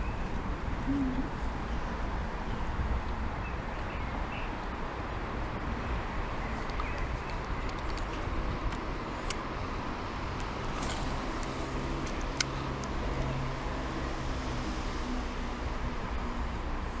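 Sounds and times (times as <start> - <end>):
road traffic rumble: 0.0 - 17.0
vehicle engine: 5.0 - 17.0.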